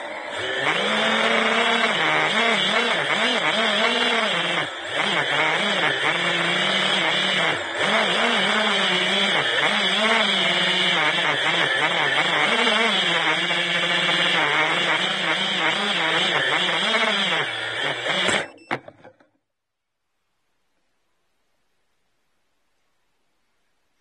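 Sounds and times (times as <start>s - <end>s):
quadcopter motors whining: 0.0s - 18.9s.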